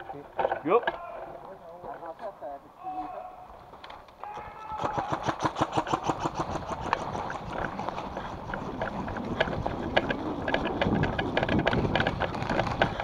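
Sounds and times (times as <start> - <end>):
footsteps and gear clicking: 3.7 - 13.0
rustling on microphone: 6.3 - 13.0.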